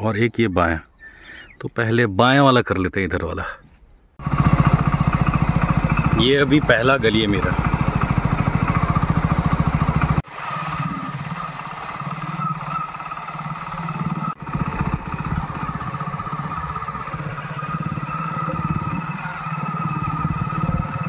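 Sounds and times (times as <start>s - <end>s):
motorcycle engine cruising: 4.2s - 21.0s.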